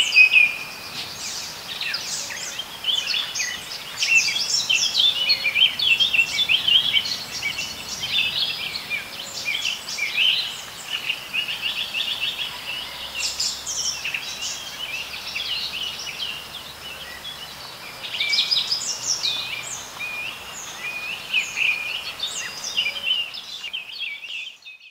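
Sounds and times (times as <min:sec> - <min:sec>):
birds chirping: 0:00.0 - 0:24.9.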